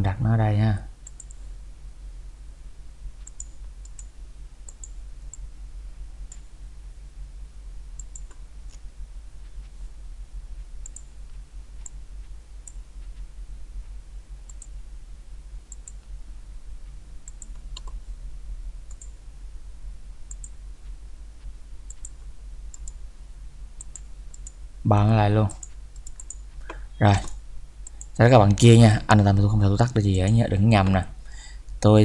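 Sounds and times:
steady low hum: 0.0 - 32.0
computer mouse clicking: 1.0 - 1.4, 3.2 - 5.4, 8.0 - 8.8, 10.8 - 12.0, 14.4 - 14.7, 15.7 - 16.1, 16.8 - 18.0, 18.9 - 19.1, 20.3 - 20.6, 21.8 - 23.0, 23.8 - 24.6, 25.5 - 28.6.

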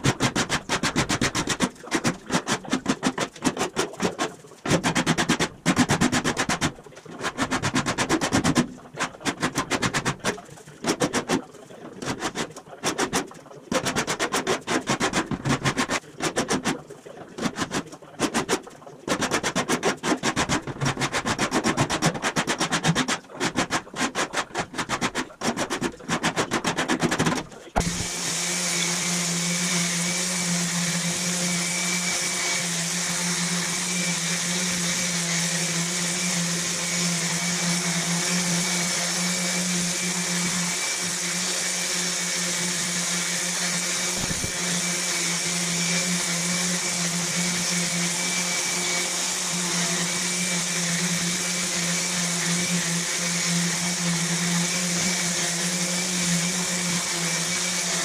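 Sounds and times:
orbital sander on metal: 27.8 - 58.0.

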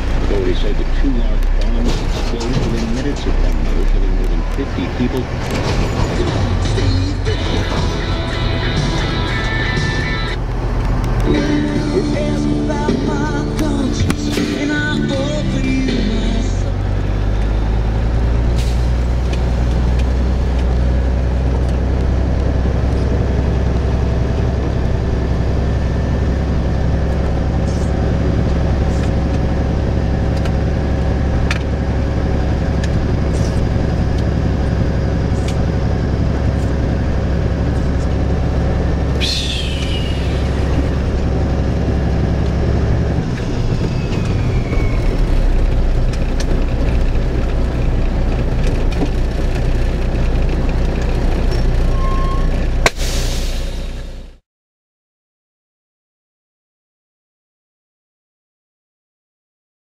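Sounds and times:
diesel truck engine drone: 0.0 - 54.4
high squeal falling in pitch: 39.2 - 40.7, 43.2 - 45.6, 51.9 - 52.6.

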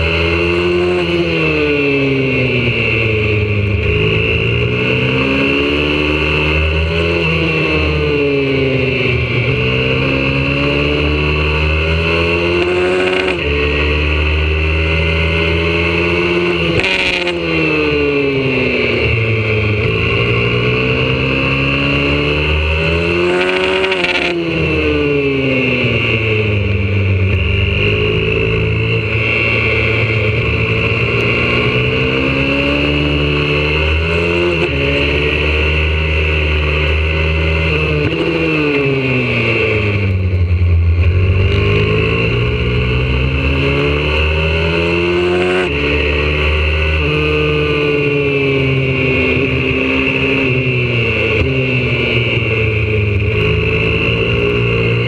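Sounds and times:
motorbike engine accelerating: 0.0 - 55.0.

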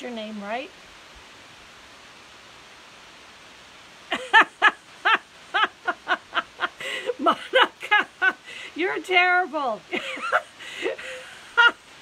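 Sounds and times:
steady background hiss: 0.0 - 12.0
woman laughing: 4.1 - 9.1, 9.8 - 11.9.

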